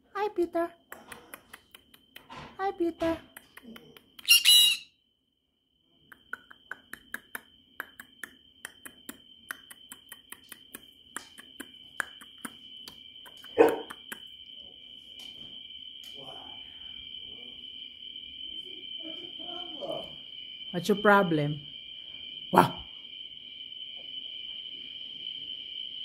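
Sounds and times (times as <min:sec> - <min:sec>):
parrot squawking: 0:04.2 - 0:04.9
faint high whine: 0:11.2 - 0:26.0.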